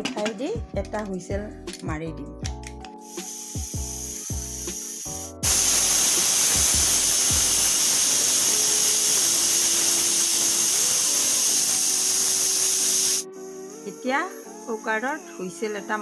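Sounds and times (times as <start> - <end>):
pressure cooker whistle hissing: 3.0 - 13.4.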